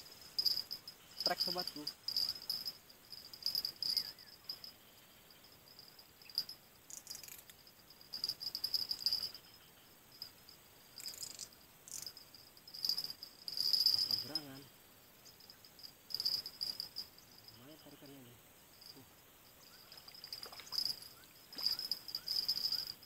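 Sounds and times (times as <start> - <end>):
insects trilling: 0.0 - 23.0.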